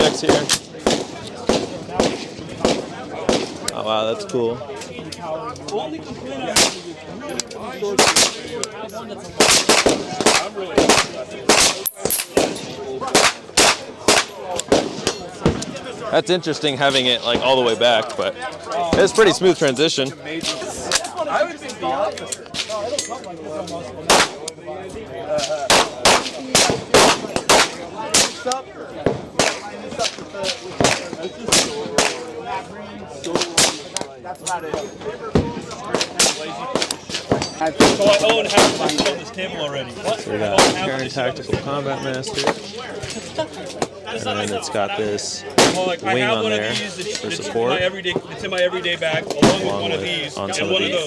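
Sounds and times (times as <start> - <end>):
rifle shots: 0.0 - 3.7, 9.4 - 15.2, 25.7 - 28.4.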